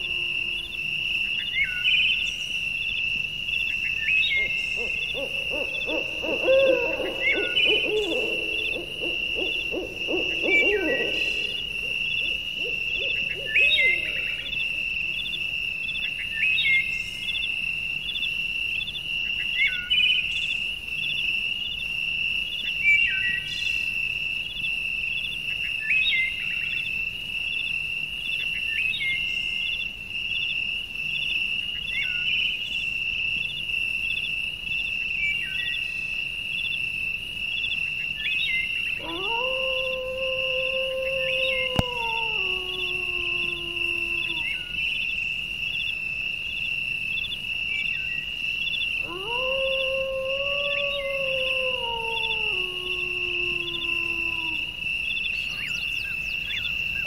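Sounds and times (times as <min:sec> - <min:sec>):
lower wavering animal call: 0:00.0 - 0:02.2, 0:04.0 - 0:15.5, 0:38.3 - 0:45.2, 0:48.7 - 0:57.0.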